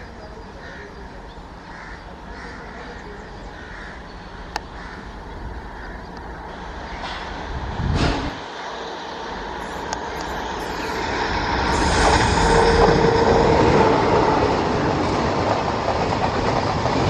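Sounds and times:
electric locomotive rumbling: 0:00.0 - 0:17.0
crows cawing: 0:01.6 - 0:07.1.

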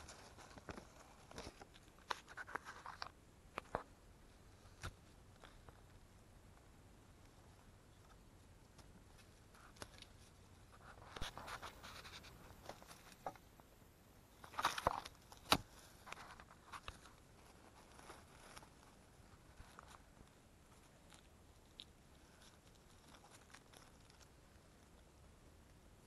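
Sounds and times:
dry leaves and twigs crackling: 0:00.0 - 0:03.9, 0:08.0 - 0:13.7, 0:14.3 - 0:25.0.

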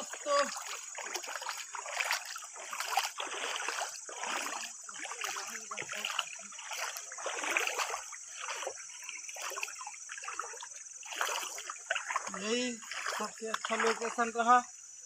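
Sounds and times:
water splashing and sloshing: 0:00.0 - 0:14.8.

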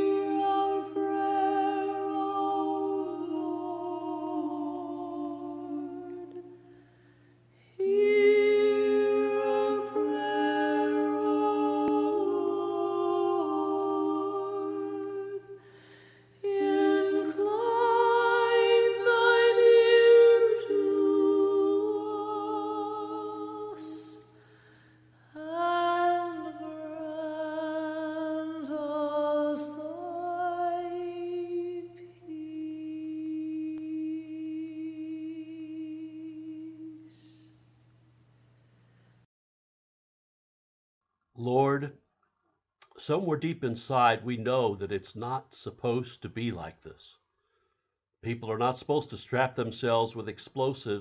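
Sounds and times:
person humming a slow melody: 0:00.0 - 0:06.8, 0:07.7 - 0:15.8, 0:16.4 - 0:24.4, 0:25.2 - 0:37.7.

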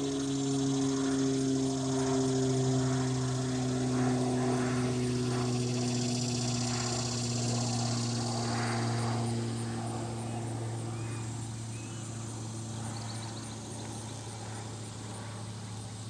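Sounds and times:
high fast-pulsing buzz: 0:00.0 - 0:16.0
low engine-like drone: 0:00.0 - 0:16.0.

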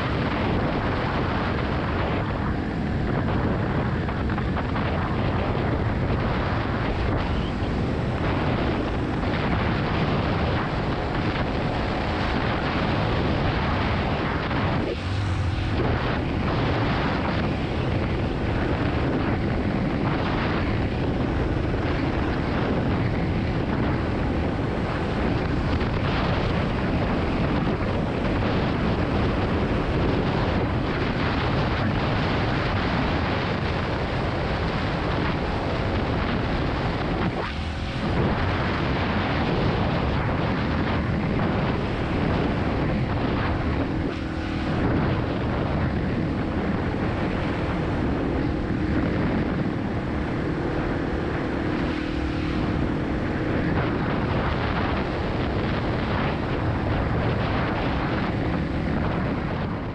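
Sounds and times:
heavy wind on microphone: 0:00.0 - 0:59.9
motorcycle engine running: 0:00.0 - 0:59.9.

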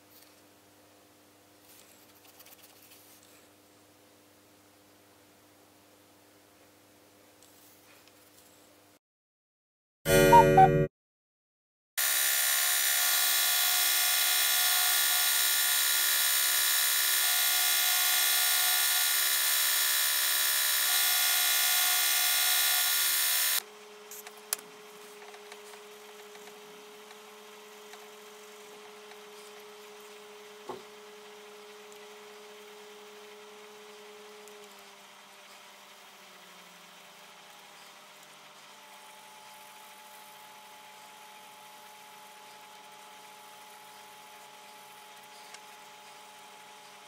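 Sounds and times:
belt sander running: 0:12.0 - 0:23.6.

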